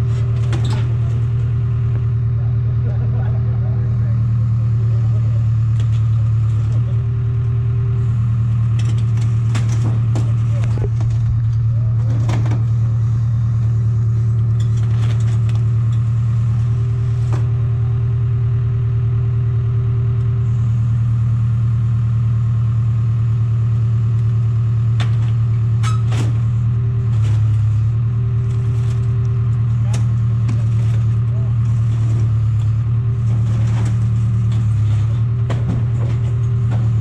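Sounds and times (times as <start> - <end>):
large engine running: 0.0 - 37.0.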